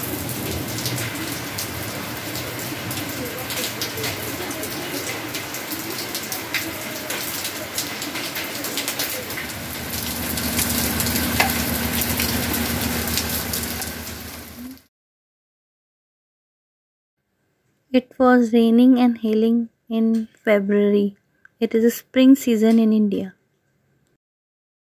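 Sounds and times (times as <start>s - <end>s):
heavy rain: 0.0s - 14.9s
hailstones ticking on metal: 9.4s - 14.0s
low steady hum: 9.4s - 14.8s.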